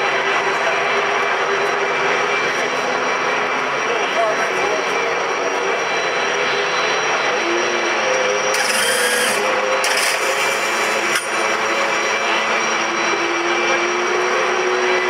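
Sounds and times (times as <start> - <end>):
drone of racing engines: 0.0 - 15.0
handheld starter whirring: 8.5 - 12.0.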